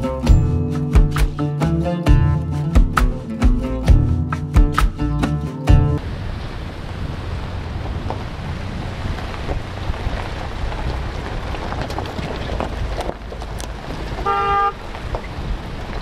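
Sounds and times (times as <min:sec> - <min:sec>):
guitar music: 0:00.0 - 0:06.0
off-road vehicle on gravel: 0:06.0 - 0:16.0
wind buffeting microphone: 0:06.0 - 0:16.0.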